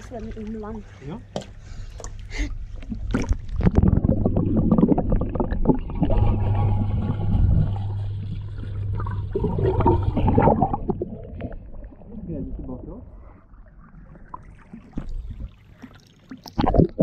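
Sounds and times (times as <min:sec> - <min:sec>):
steady low hum: 0:00.0 - 0:14.4
muffled underwater splashing and bubbling: 0:01.6 - 0:17.0.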